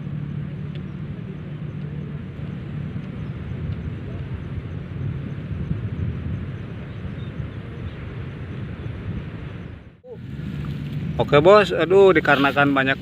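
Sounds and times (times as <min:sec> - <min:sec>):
low engine drone: 0:00.0 - 0:13.0
open field ambience: 0:00.0 - 0:13.0.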